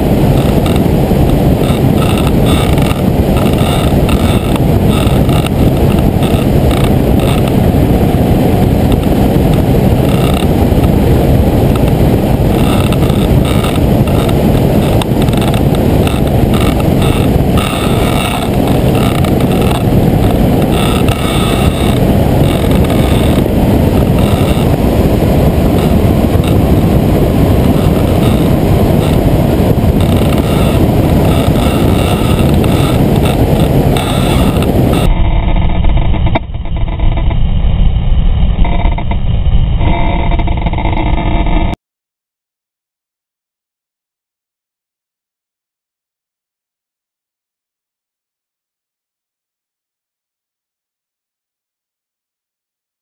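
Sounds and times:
ultralight aircraft engine running: 0:00.0 - 0:41.8
wind rushing over microphone: 0:00.0 - 0:41.8.

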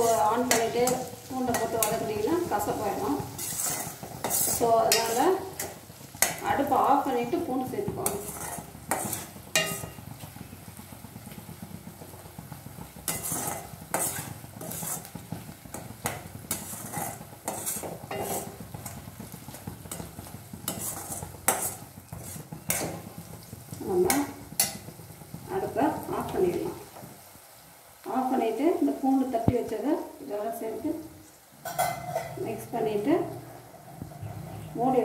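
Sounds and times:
steel spoon scraping a pan: 0:00.0 - 0:06.8, 0:08.0 - 0:10.0, 0:13.0 - 0:23.1, 0:24.1 - 0:24.9, 0:31.6 - 0:35.0
oil sizzling: 0:00.0 - 0:35.0.

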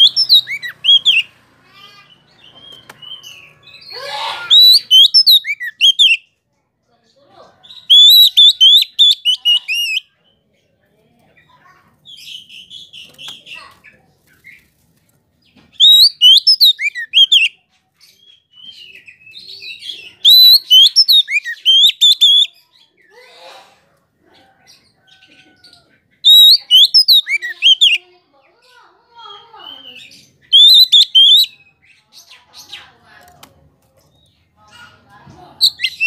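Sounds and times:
bird singing whistled phrases: 0:00.0 - 0:01.3, 0:02.6 - 0:06.3, 0:07.8 - 0:10.1, 0:15.8 - 0:17.5, 0:18.2 - 0:22.6, 0:26.2 - 0:28.0, 0:29.8 - 0:31.7, 0:35.6 - 0:36.0
bird chattering: 0:00.0 - 0:03.9, 0:04.5 - 0:06.2, 0:07.6 - 0:10.1, 0:15.8 - 0:17.6, 0:18.2 - 0:22.5, 0:25.2 - 0:28.1, 0:29.2 - 0:31.6, 0:34.0 - 0:36.0.

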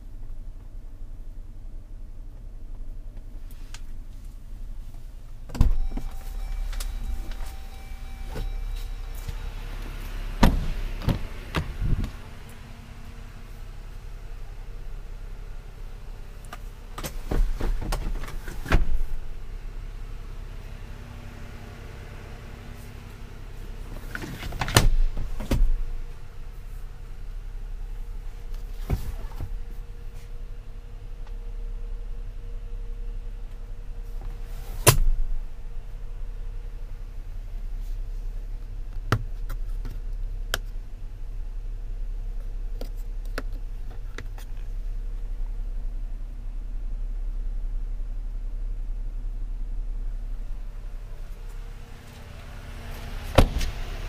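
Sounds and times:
steady low hum: 0:00.0 - 0:54.0
seatback landing thud: 0:05.5 - 0:12.6, 0:16.9 - 0:19.2, 0:23.9 - 0:26.1, 0:28.6 - 0:29.8, 0:34.4 - 0:35.5, 0:53.2 - 0:53.9.

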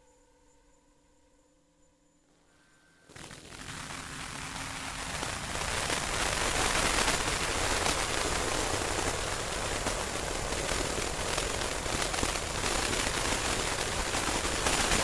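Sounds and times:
harsh static noise music: 0:03.0 - 0:15.0
scattered crackles: 0:03.1 - 0:15.0.

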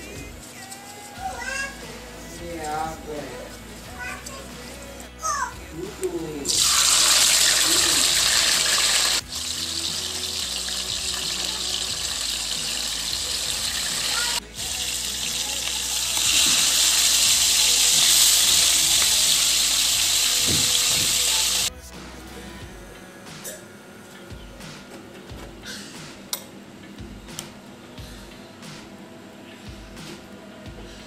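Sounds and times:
fish sizzling in hot oil: 0:06.5 - 0:21.7.

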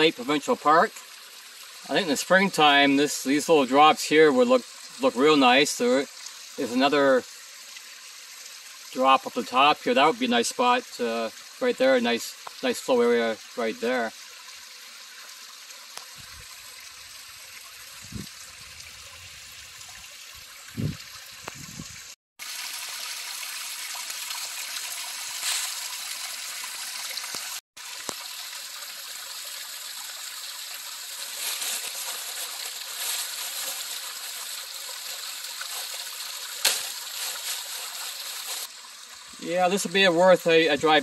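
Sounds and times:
waterfall splashing over rocks: 0:22.4 - 0:38.7.

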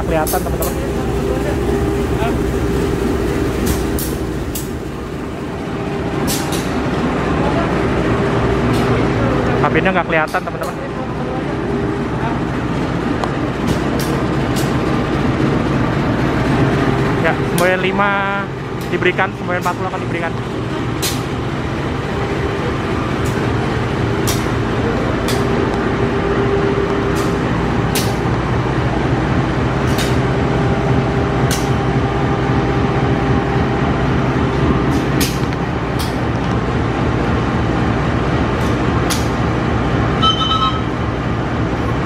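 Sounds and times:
locomotive engine idling: 0:00.0 - 0:42.0
brief high tone: 0:40.2 - 0:41.1.

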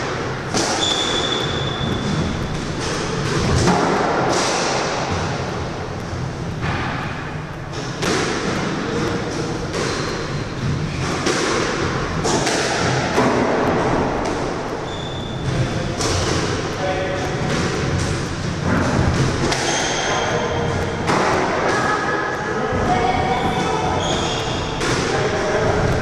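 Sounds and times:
squash ball hits echoing: 0:00.0 - 0:26.0
high shoe squeak: 0:00.6 - 0:03.2, 0:09.8 - 0:11.2, 0:14.8 - 0:16.5, 0:19.5 - 0:20.7, 0:23.4 - 0:24.8.

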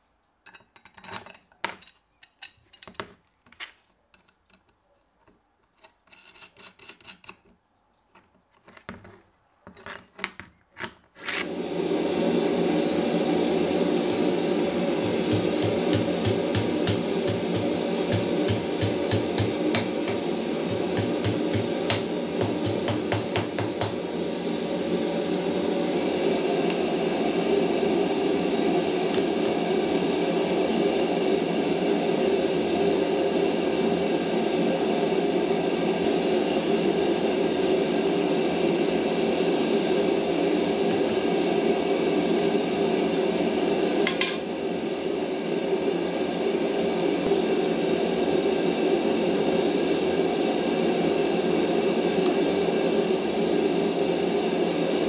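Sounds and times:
gas forge burners roaring: 0:11.2 - 0:55.0.

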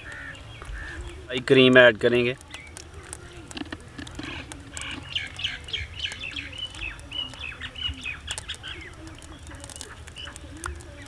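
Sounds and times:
birds chirping high notes: 0:00.0 - 0:01.7, 0:04.2 - 0:11.0
faint low bird calls: 0:00.0 - 0:11.0.

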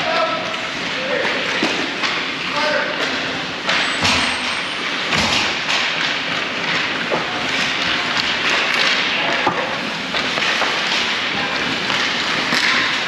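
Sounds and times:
sticks and puck clacking: 0:00.0 - 0:13.0
skate blades scraping ice: 0:04.8 - 0:13.0.

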